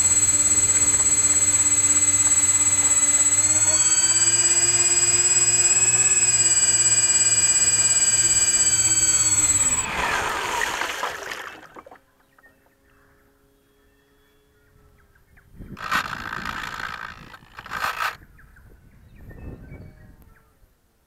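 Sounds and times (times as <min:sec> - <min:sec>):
electric motor high whine: 0:00.0 - 0:11.6, 0:15.8 - 0:18.2.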